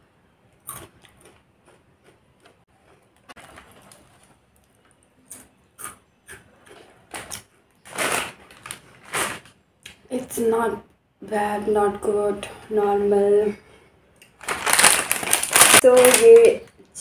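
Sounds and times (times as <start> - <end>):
biscuits crunching while chewed: 0.6 - 9.3
plastic packet crinkling: 7.1 - 9.6, 14.2 - 16.7.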